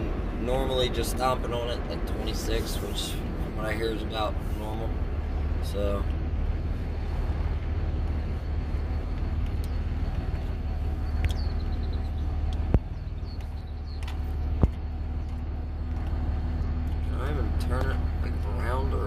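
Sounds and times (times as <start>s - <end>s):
diesel engine drone: 0.0s - 19.0s
road noise: 0.0s - 19.0s.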